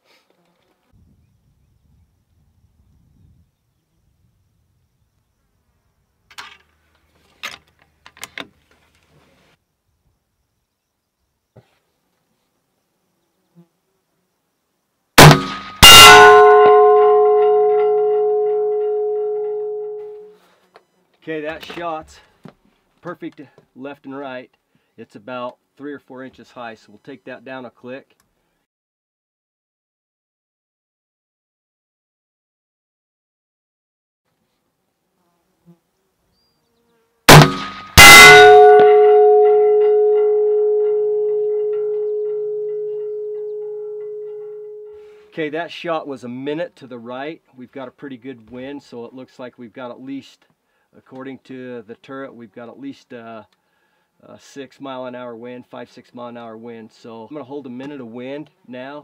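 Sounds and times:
rifle shot: 15.2s - 17.0s, 37.3s - 38.6s
bullet striking steel plate: 15.2s - 20.3s, 37.3s - 45.0s
steel plate ringing: 15.2s - 20.3s, 37.3s - 45.2s.

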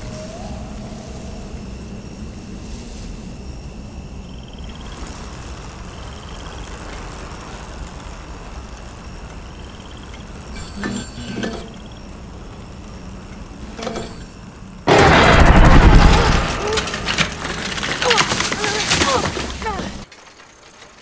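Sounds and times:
bicycle rumbling on road: 0.0s - 21.0s
bicycle rattles: 4.4s - 21.0s
fast bicycle ticking: 4.6s - 14.9s.

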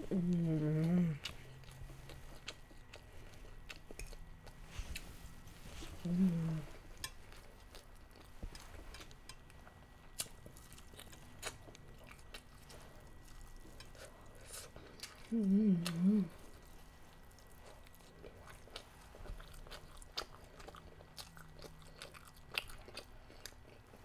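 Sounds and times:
person humming: 0.0s - 1.3s, 6.0s - 6.8s, 15.3s - 16.4s
person chewing fried chicken: 0.1s - 5.1s, 6.0s - 24.0s.

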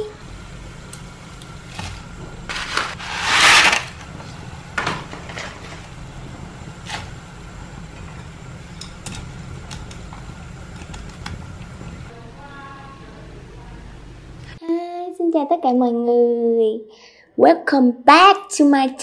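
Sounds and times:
steady low hum: 0.0s - 14.6s.

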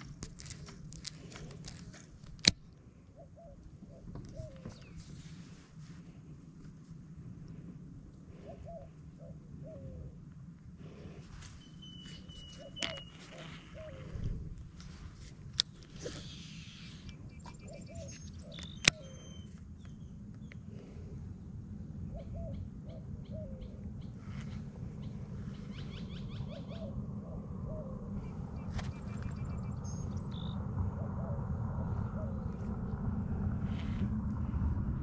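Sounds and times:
steady low rumble: 0.0s - 35.0s
bird low repeated call: 3.1s - 5.0s, 8.4s - 10.2s, 11.6s - 14.3s, 16.0s - 20.1s, 22.1s - 24.1s, 25.0s - 32.6s
higher bird chirps: 11.5s - 14.0s, 16.2s - 20.2s.

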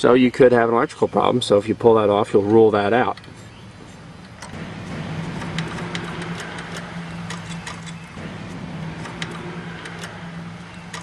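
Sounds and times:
small engine running: 4.4s - 11.0s.

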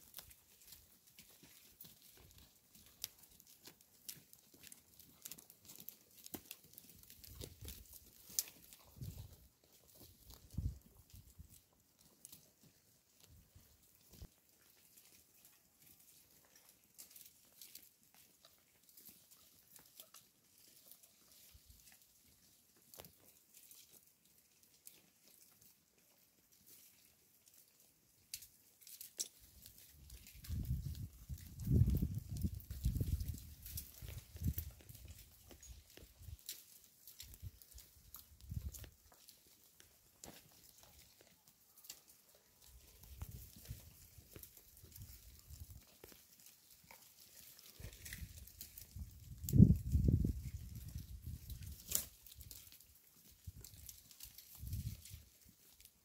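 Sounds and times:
goat chewing grass: 0.0s - 56.0s
goat tearing grass: 28.8s - 41.3s, 42.0s - 55.9s.

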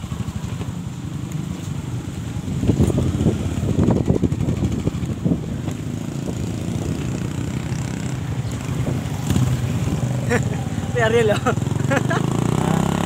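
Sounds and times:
motorcycle engine running: 0.0s - 13.0s
wind buffeting microphone: 2.0s - 10.9s.

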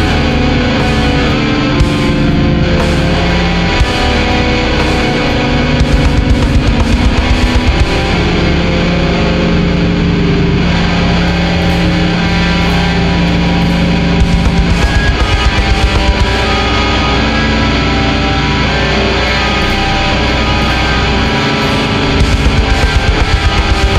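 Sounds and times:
distorted electric guitars: 0.0s - 23.9s
drums: 0.0s - 23.9s
rapid drum hits: 0.8s - 9.0s, 11.4s - 17.5s, 21.4s - 23.9s.

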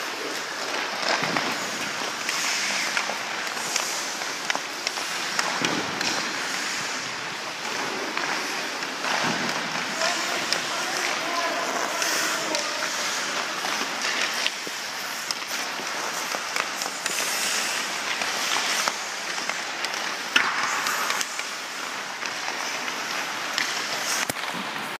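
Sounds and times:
skate blades scraping ice: 0.0s - 25.0s
hockey stick clicking puck: 0.1s - 24.9s.

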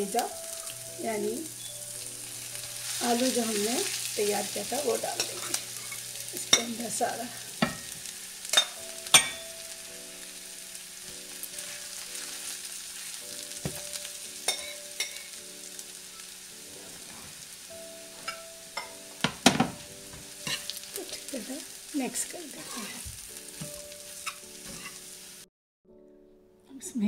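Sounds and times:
light sizzle: 0.0s - 25.5s
spoon knocking against pan: 7.6s - 9.4s, 18.2s - 20.7s.

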